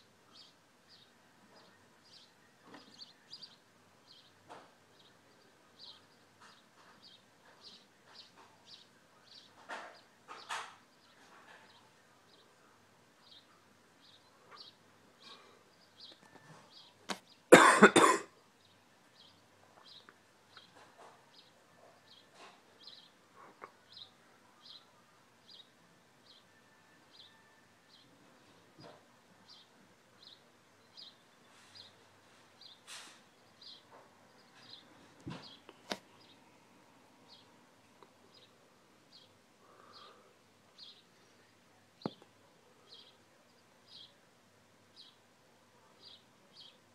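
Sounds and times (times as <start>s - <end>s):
bird chirping: 0.0s - 17.6s, 18.5s - 36.5s, 37.2s - 46.9s
person coughing: 17.5s - 18.4s.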